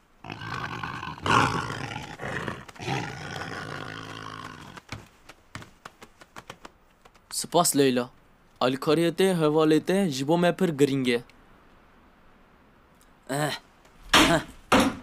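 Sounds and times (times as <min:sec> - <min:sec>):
cartoon animal growling roar: 0:00.2 - 0:04.8.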